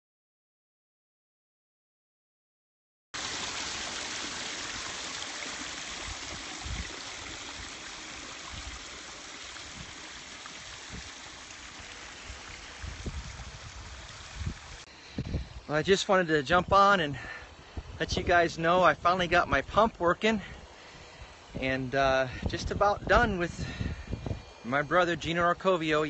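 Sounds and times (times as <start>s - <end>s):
hose water splashing over rocks: 3.2s - 14.9s.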